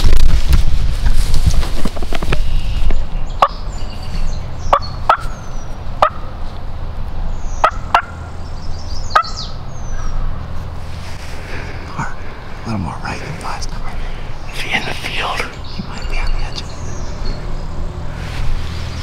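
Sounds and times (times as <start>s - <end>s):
low wind rumble: 0.0s - 19.0s
wild turkey calling: 3.4s - 3.7s, 4.6s - 6.3s, 7.4s - 8.4s, 9.0s - 10.4s.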